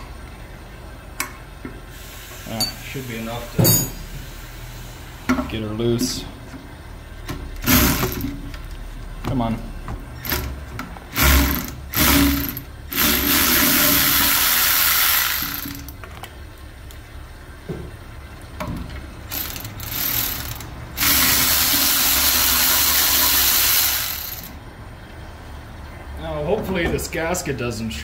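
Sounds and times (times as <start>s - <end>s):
cordless electric ratchet running: 7.6s - 8.3s, 11.1s - 16.0s, 19.3s - 24.6s.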